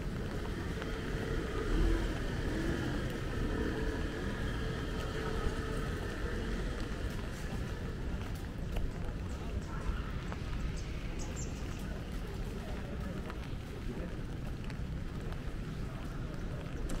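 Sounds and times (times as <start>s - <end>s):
vehicle engine running: 0.0s - 9.2s.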